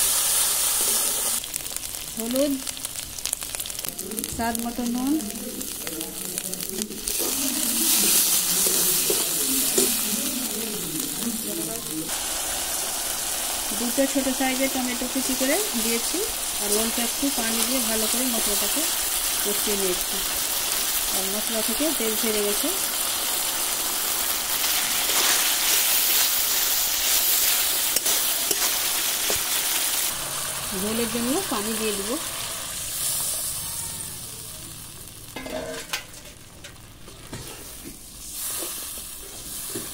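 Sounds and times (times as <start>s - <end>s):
spice paste sizzling in oil: 0.0s - 39.9s
metal spatula stirring in wok: 24.6s - 30.3s, 35.3s - 39.9s.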